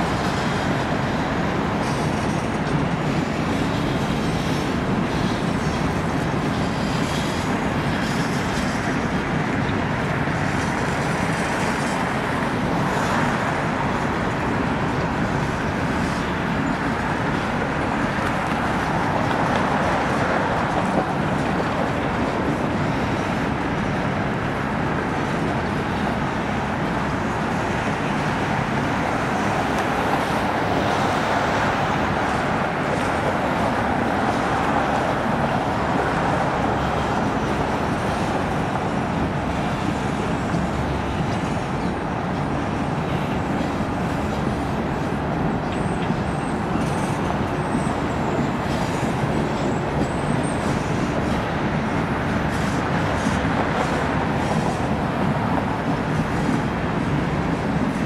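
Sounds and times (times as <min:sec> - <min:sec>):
freight train wheels rumbling on rails: 0:00.0 - 0:58.0.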